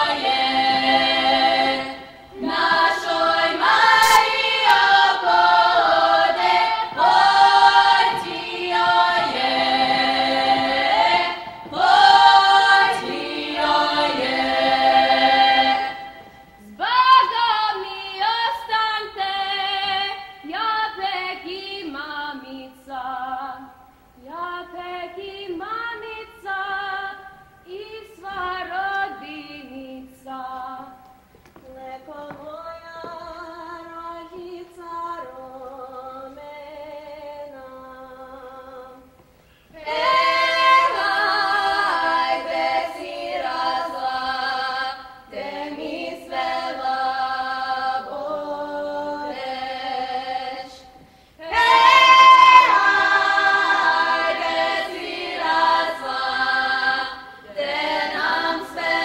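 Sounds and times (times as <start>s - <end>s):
choir singing: 0.0s - 22.4s, 39.8s - 59.0s.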